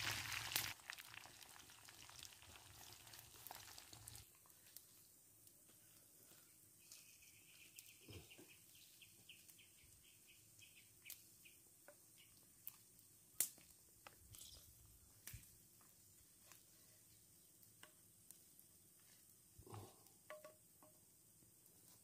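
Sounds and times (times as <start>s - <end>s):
bird chirping: 6.8s - 12.6s
chopsticks tapping a frying pan: 20.3s - 21.0s.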